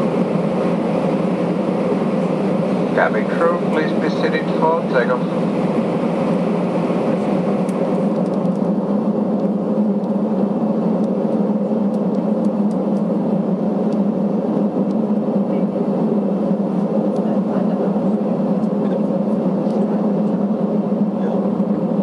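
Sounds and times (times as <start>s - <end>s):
jet engines humming in cabin: 0.0s - 22.0s.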